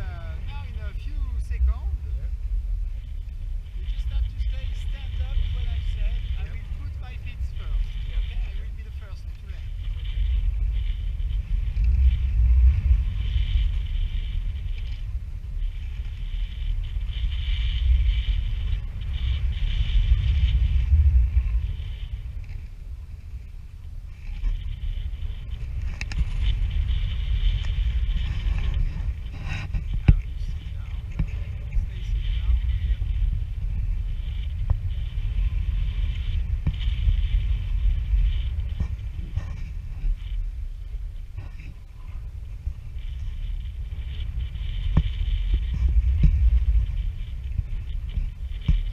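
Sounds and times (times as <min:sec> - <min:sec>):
wind buffeting microphone: 0:00.0 - 0:48.9
faint ticks: 0:09.3 - 0:41.8, 0:42.4 - 0:48.9.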